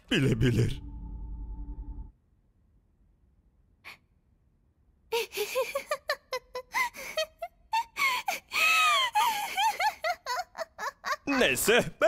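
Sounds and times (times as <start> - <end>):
woman laughing breathily: 5.1 - 11.2.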